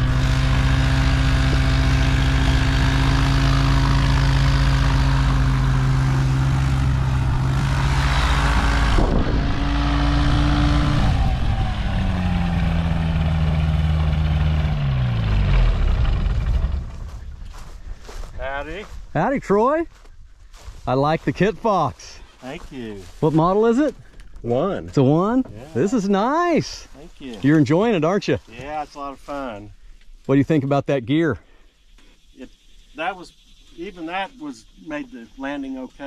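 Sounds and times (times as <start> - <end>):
light aircraft engine and propeller: 0.0 - 17.9.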